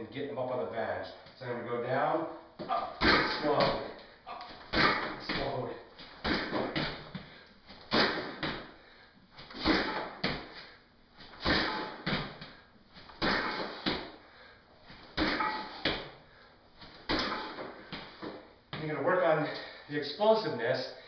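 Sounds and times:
shoes thudding on bench: 0:02.6 - 0:08.7, 0:09.6 - 0:10.6.

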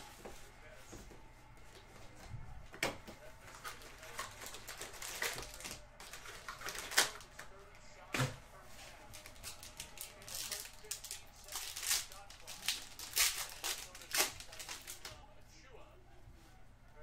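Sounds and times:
card pack wrappers crinkling: 0:03.4 - 0:07.6, 0:09.1 - 0:15.2.

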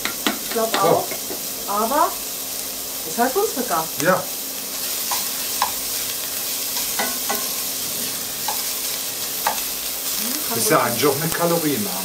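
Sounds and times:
bacon sizzling in a pot: 0:00.0 - 0:12.0
spatula scraping and knocking pot: 0:06.7 - 0:08.8.

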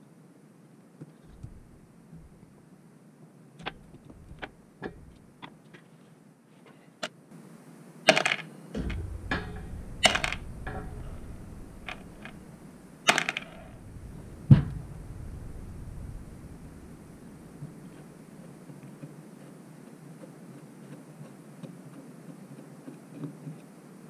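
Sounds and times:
screws clattering into plastic tub: 0:13.1 - 0:13.7.

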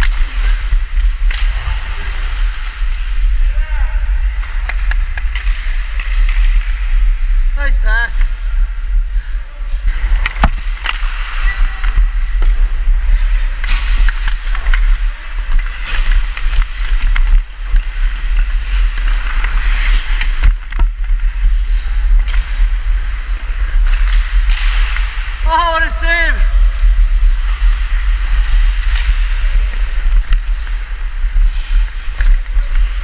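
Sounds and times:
ice skates scraping on ice: 0:00.0 - 0:07.4, 0:09.8 - 0:25.1, 0:26.4 - 0:33.0
hockey stick clacking on ice: 0:13.6 - 0:21.1.

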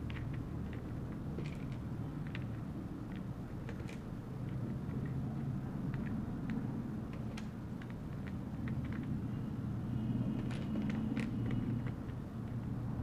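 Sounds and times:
wooden pieces clicking: 0:00.0 - 0:09.2, 0:10.4 - 0:12.7.

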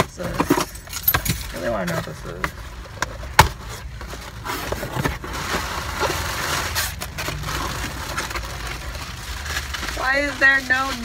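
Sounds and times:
packaging rustling: 0:03.6 - 0:11.0.

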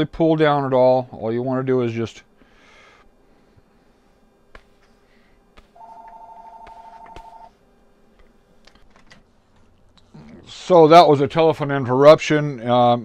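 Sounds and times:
telephone ringing: 0:05.8 - 0:07.6.

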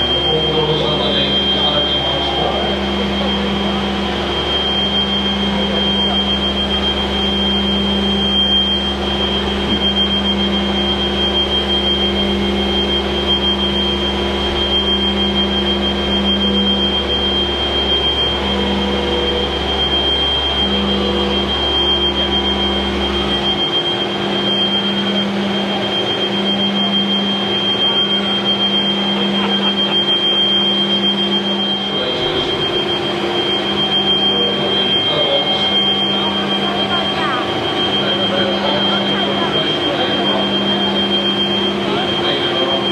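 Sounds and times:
constant high whine: 0:00.0 - 0:42.9
machine hum: 0:00.0 - 0:42.9.

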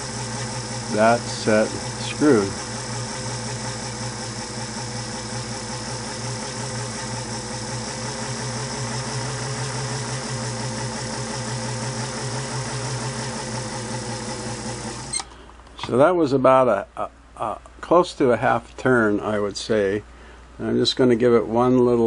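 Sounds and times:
sewing machine running: 0:00.0 - 0:15.2.

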